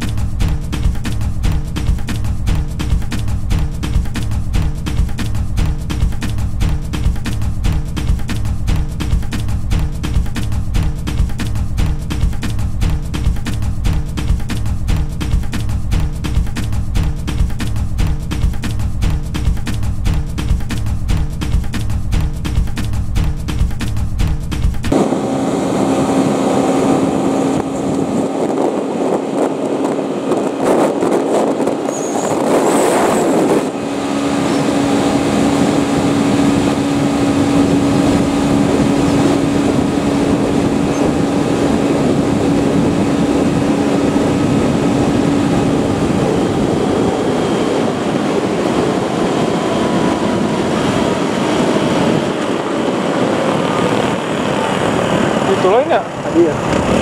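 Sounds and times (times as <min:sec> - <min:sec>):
motorcycle engine cruising: 0:00.0 - 0:57.0
wind and road noise: 0:00.0 - 0:57.0.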